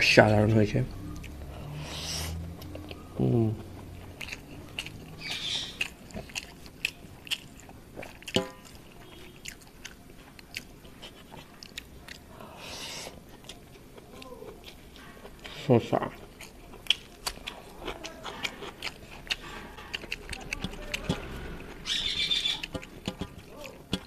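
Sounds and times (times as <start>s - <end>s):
person chewing food: 0.0s - 24.0s
person humming: 3.2s - 3.7s.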